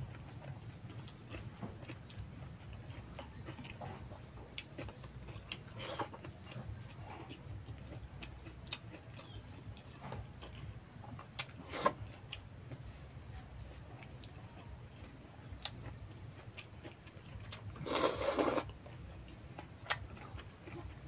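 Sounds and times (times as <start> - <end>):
person chewing with lip smacks: 19.6 - 20.9.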